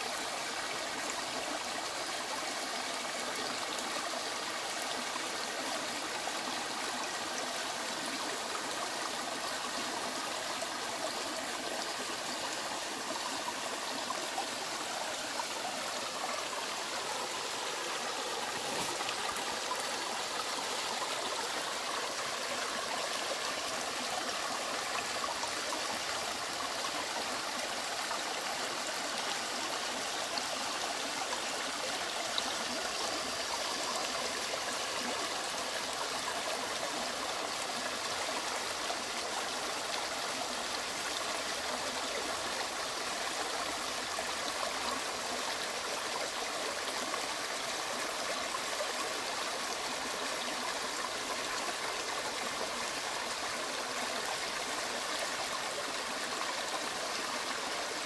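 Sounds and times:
stream splashing over stones: 0:14.5 - 0:34.7.

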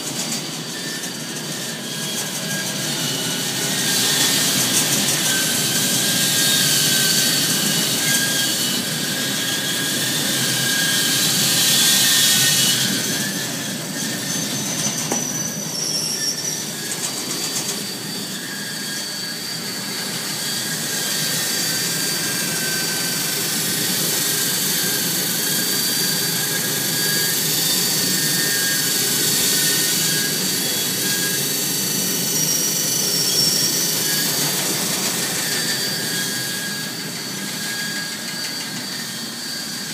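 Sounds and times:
high squealing tones: 0:00.2 - 0:39.9.

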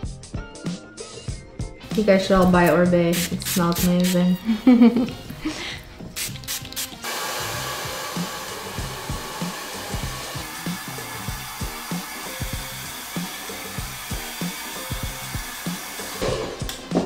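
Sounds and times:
background music with beat: 0:00.0 - 0:17.0
hair dryer blowing: 0:06.2 - 0:16.9.

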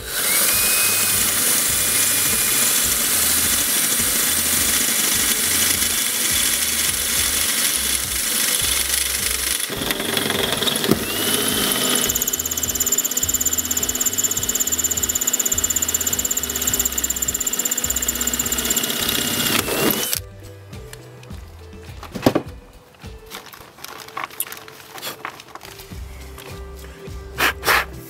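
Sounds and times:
power drill grinding through metal: 0:00.0 - 0:20.2.

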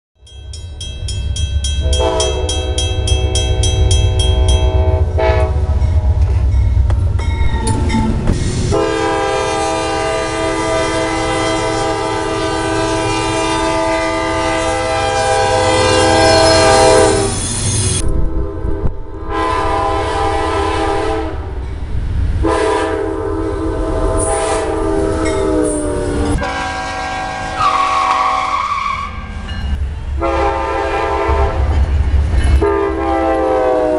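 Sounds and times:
fast high ringing: 0:00.2 - 0:05.2
locomotive rumble: 0:00.3 - 0:33.9
locomotive air horn blasts: 0:01.8 - 0:06.2, 0:08.7 - 0:17.4, 0:18.0 - 0:21.5, 0:22.4 - 0:29.3, 0:30.2 - 0:31.8, 0:32.6 - 0:33.9.

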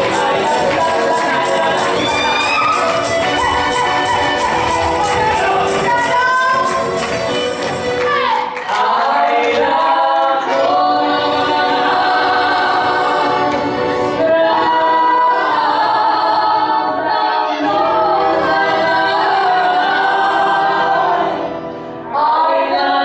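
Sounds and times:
acoustic guitar: 0:00.0 - 0:08.3
accordion: 0:00.0 - 0:08.4, 0:10.4 - 0:23.0
violin: 0:00.0 - 0:08.6
voices singing together: 0:00.0 - 0:23.0.

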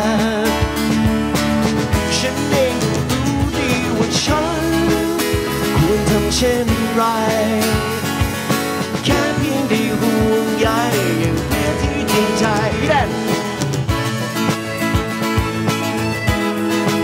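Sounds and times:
man singing: 0:00.0 - 0:01.3, 0:01.9 - 0:13.6
piano accordion: 0:00.0 - 0:17.0
strummed acoustic guitar: 0:00.0 - 0:17.0.

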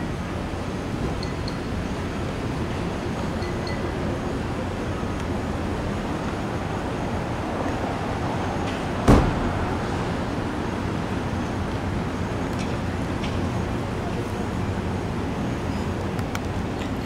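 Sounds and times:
road traffic: 0:00.0 - 0:17.0
sharp thump: 0:09.0 - 0:09.7.

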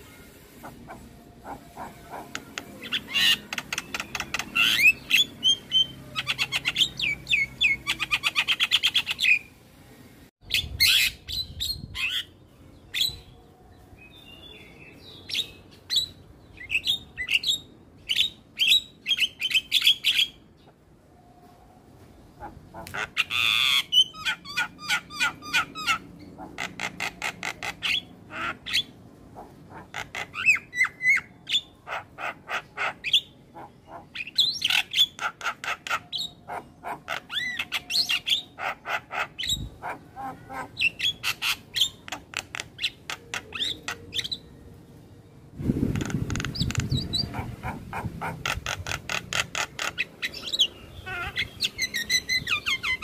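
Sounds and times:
bird harsh squawks: 0:00.0 - 0:09.4, 0:22.4 - 0:44.4, 0:46.0 - 0:53.0
bird singing repeated notes: 0:00.0 - 0:09.5.

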